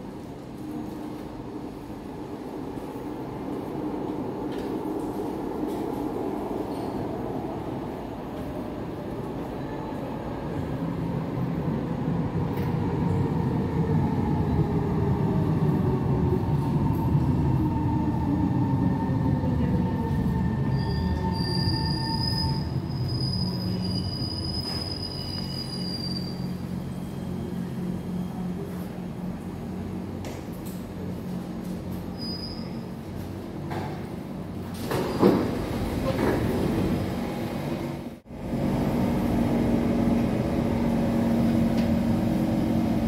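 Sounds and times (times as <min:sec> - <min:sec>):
train low rumble: 0:00.0 - 0:43.0
high steady brake squeal: 0:20.7 - 0:28.7, 0:32.1 - 0:33.0.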